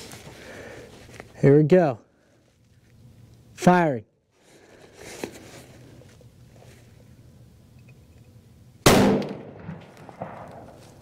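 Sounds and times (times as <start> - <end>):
rifle shot: 8.8 - 10.8.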